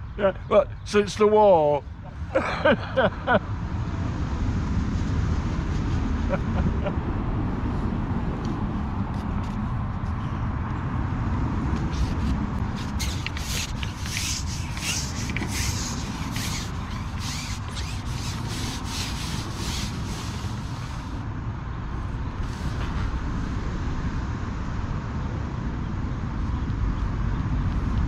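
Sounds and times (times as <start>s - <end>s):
rubbing rustling strokes: 11.8s - 21.2s.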